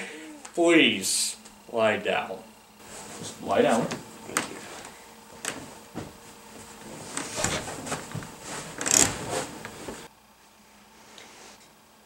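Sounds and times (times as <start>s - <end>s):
fabric rustling: 4.5s - 10.1s
soft knocks on couch: 5.4s - 6.2s.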